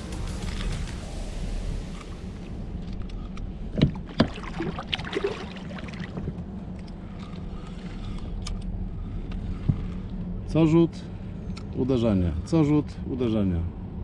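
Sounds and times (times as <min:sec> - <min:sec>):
oar blade moving through water: 0:03.7 - 0:06.5.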